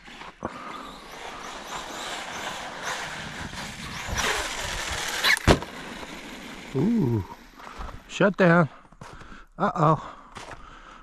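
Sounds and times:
tyres rushing through snow: 0.0s - 8.2s
electric motor whining: 0.5s - 7.6s.

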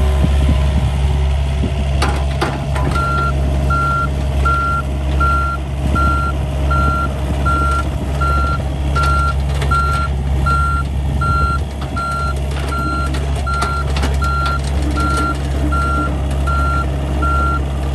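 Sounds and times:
diesel engine hum: 0.0s - 17.9s
clicks and clanks: 2.0s - 3.3s, 7.4s - 16.6s
excavator travel alarm beeping: 2.6s - 17.9s.

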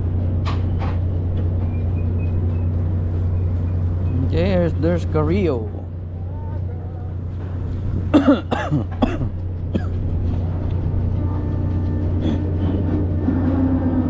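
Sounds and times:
boat engines droning: 0.0s - 14.0s
short coughs: 8.1s - 10.0s.

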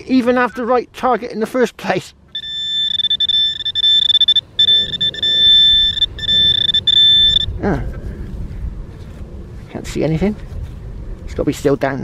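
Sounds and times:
high-pitched buzzing tone: 2.4s - 7.5s.

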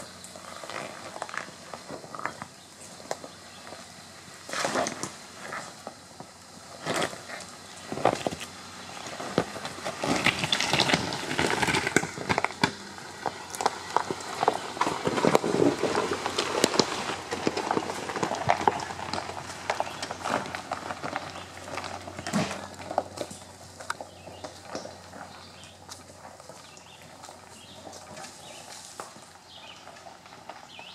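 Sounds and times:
tyres crunching over gravel: 0.0s - 30.9s
stones cracking and popping: 7.9s - 30.9s.

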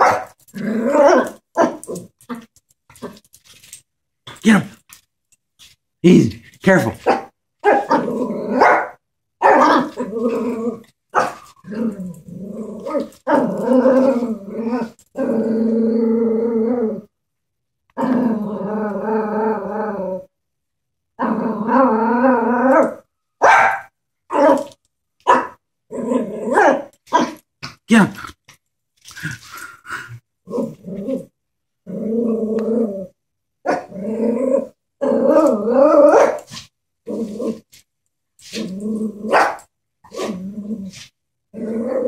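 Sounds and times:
dog yapping: 0.0s - 0.3s, 7.0s - 8.0s, 8.6s - 9.9s, 11.2s - 11.4s, 23.4s - 24.6s, 36.1s - 36.4s
dog growling: 0.5s - 3.2s, 7.8s - 8.7s, 9.6s - 10.9s, 11.6s - 17.1s, 29.2s - 33.1s, 33.8s - 36.2s, 40.1s - 42.0s.

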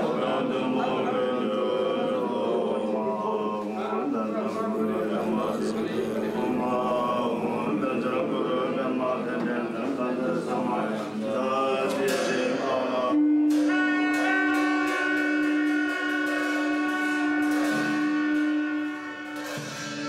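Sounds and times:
voices chanting: 0.0s - 20.0s
light percussion strikes: 11.8s - 20.0s
horn long steady note: 12.8s - 20.0s.

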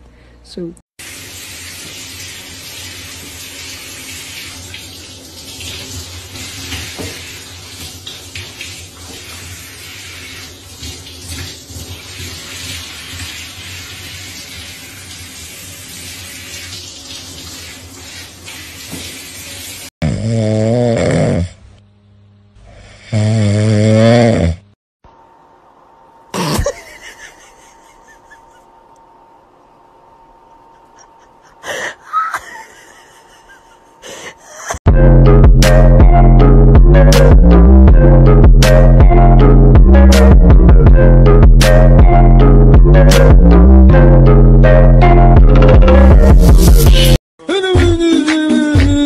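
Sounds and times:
shower sprayer running water: 1.0s - 19.9s, 26.6s - 28.6s
cat snoring: 20.0s - 21.6s, 22.6s - 24.8s.

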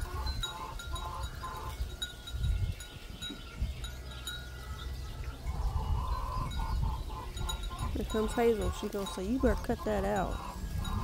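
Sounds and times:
hen clucking: 0.0s - 2.2s, 3.2s - 11.0s
wind chimes ringing: 0.0s - 11.0s.

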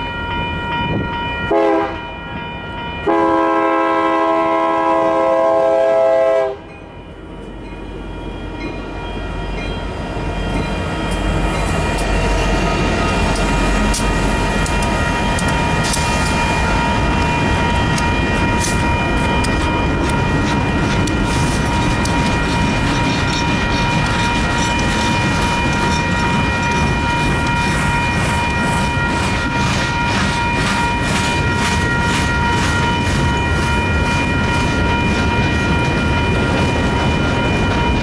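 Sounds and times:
steady high ringing tone: 0.0s - 3.8s, 6.1s - 38.0s
diesel locomotive engine rumble: 0.0s - 38.0s
freight cars rumbling and clattering: 10.3s - 38.0s
train wheel clicks: 10.5s - 38.0s.

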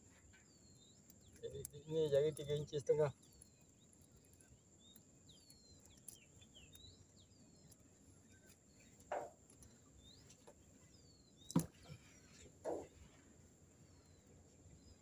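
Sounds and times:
bird chirps: 0.0s - 15.0s.

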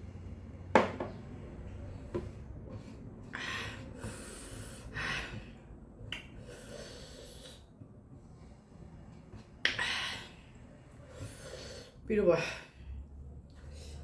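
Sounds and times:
woman's sharp hissing breaths: 11.1s - 12.0s.

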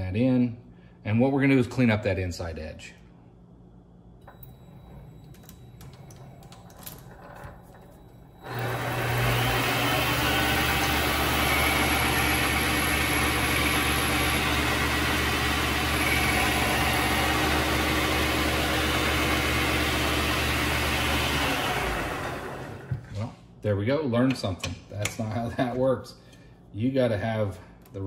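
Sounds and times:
lathe motor humming and whining: 8.4s - 23.0s.

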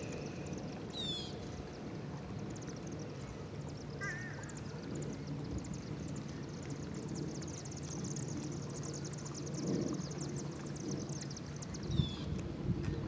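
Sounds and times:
small birds chirping: 0.0s - 1.8s
low steady hum: 0.0s - 13.0s.

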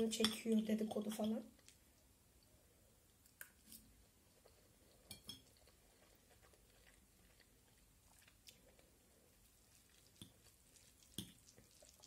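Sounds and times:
chewing spaghetti: 4.2s - 12.0s.

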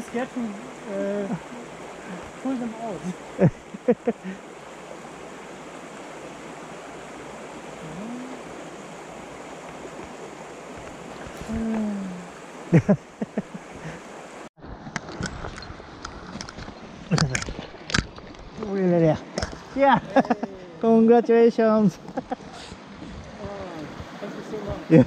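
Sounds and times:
stream over rocks: 0.0s - 25.0s
low voice hum: 7.8s - 8.5s, 11.4s - 12.4s.

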